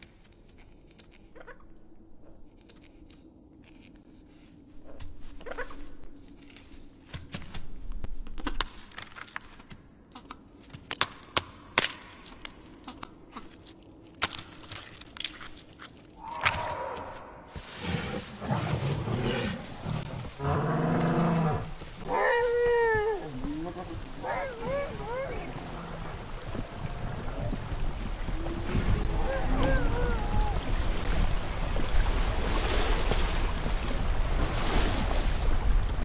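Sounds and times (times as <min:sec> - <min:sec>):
sharp crunches and clicks: 0:06.3 - 0:16.8
creature call: 0:22.1 - 0:25.9, 0:29.0 - 0:30.7.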